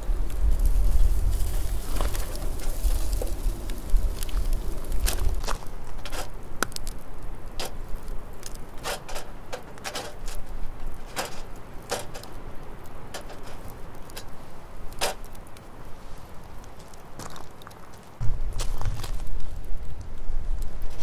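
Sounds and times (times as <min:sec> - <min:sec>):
wood fire crackling: 0:00.0 - 0:21.0
buns moved on grill mesh: 0:00.4 - 0:07.0, 0:07.6 - 0:15.4.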